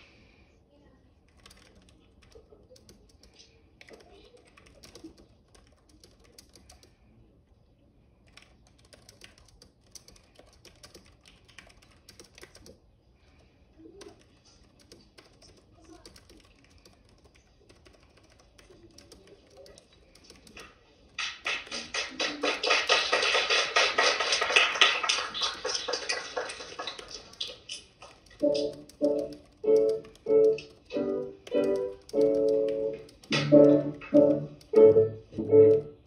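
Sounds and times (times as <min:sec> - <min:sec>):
rapid clicking and tapping: 0:01.3 - 0:07.0, 0:08.2 - 0:35.9
loud dense sound: 0:33.3 - 0:36.0.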